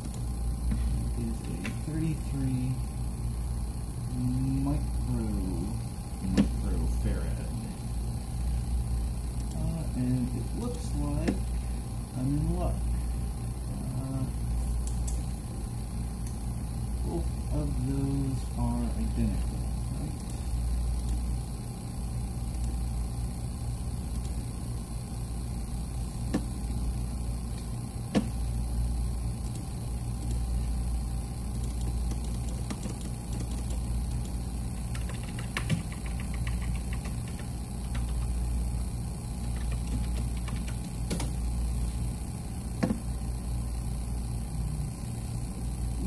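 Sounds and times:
low hum: 0.0 - 46.0
sharp clicks: 31.6 - 38.3, 39.4 - 41.4.

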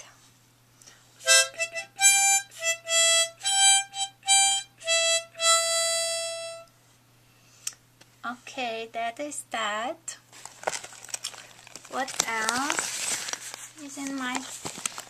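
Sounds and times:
harmonica notes: 1.2 - 6.7.

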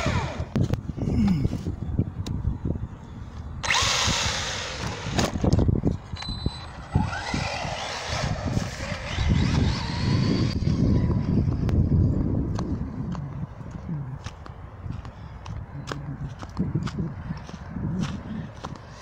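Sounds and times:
electric motor whining: 0.0 - 0.7, 3.6 - 12.2.

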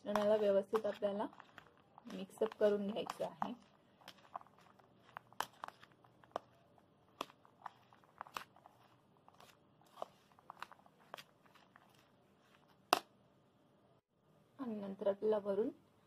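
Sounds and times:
metal spoon stirring in bowl: 0.0 - 12.2.

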